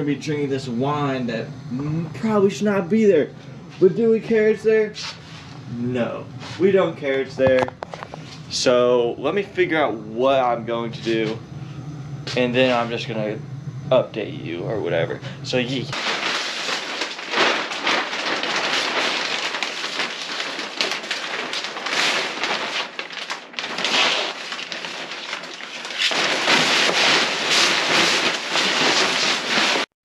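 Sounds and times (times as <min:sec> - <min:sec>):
plastic sheets crinkling: 0:15.7 - 0:30.0.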